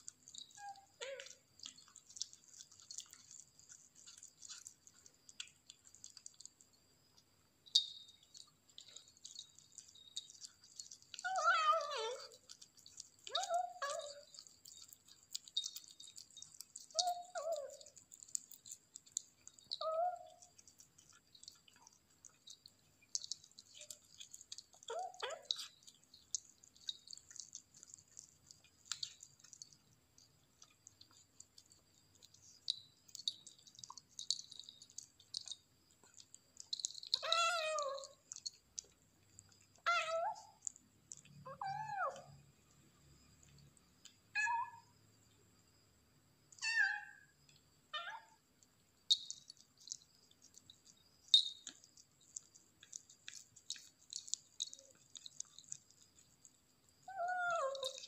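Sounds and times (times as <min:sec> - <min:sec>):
small collar bells jingling: 0:00.0 - 0:05.4, 0:07.6 - 0:30.0, 0:31.0 - 0:38.6, 0:49.1 - 0:56.3, 0:57.0 - 0:58.0
kitten eating: 0:00.0 - 0:58.0.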